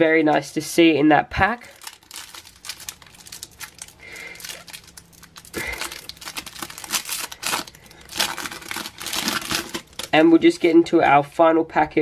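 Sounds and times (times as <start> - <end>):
foil wrapper crinkling: 1.4 - 10.6.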